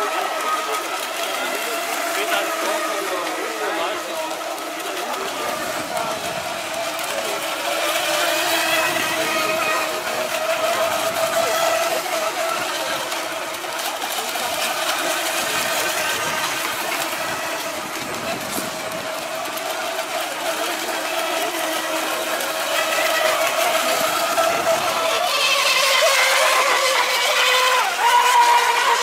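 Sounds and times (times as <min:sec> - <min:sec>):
hulls on water: 0:00.0 - 0:29.0
rc boat engines whining: 0:00.0 - 0:29.0.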